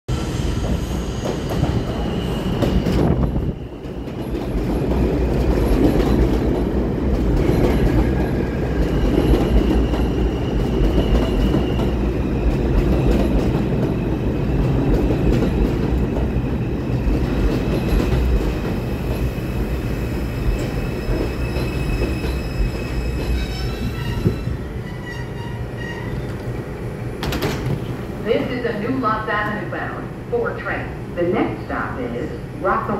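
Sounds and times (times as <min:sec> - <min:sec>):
train wheels rumbling on rail: 0:00.1 - 0:29.6
high brake squeal: 0:20.5 - 0:26.4.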